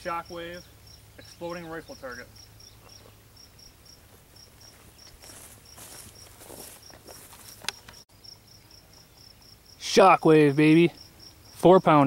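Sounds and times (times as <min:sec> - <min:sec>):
insect chirping: 0:00.0 - 0:12.0
faint rustling: 0:04.0 - 0:08.0.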